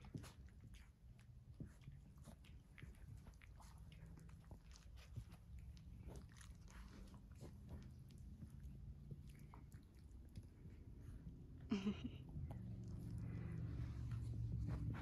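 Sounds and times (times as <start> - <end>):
dogs play-biting: 0.0 - 11.2
low steady hum: 0.0 - 15.0.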